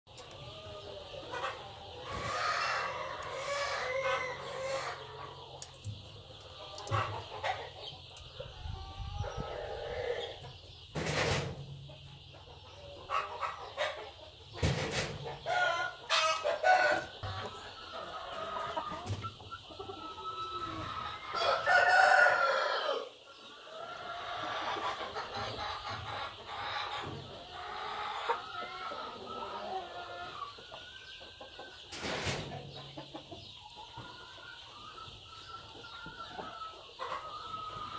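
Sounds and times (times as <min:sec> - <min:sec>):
chicken clucking: 0:00.1 - 0:37.9
rooster crowing: 0:20.4 - 0:23.1.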